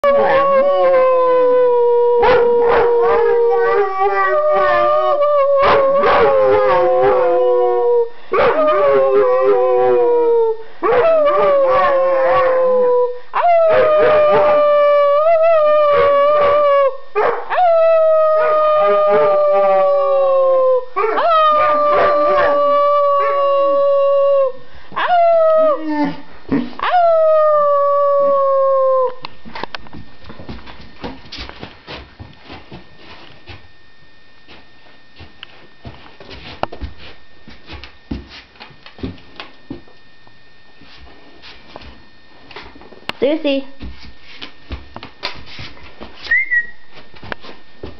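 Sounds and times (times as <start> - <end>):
dogs howling: 0.0 - 26.2, 26.8 - 29.3.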